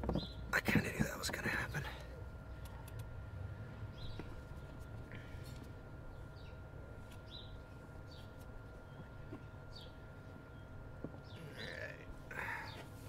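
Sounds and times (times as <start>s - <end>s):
faint hum: 0.0s - 13.0s
low steady rumble: 0.0s - 13.0s
small bird chirping: 6.1s - 12.9s.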